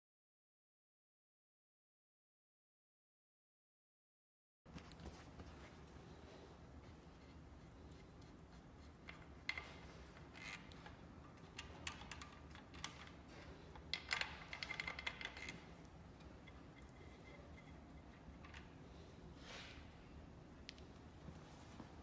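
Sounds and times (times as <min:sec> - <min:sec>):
tools clicking against metal: 0:09.0 - 0:15.7.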